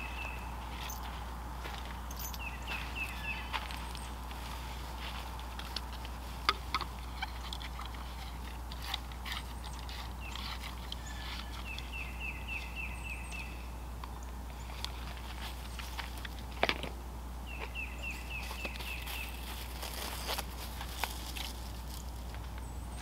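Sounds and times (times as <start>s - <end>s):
bird chirping: 0.0s - 4.2s, 5.2s - 16.3s, 17.4s - 20.1s
garden hose fittings clicking: 5.5s - 11.9s.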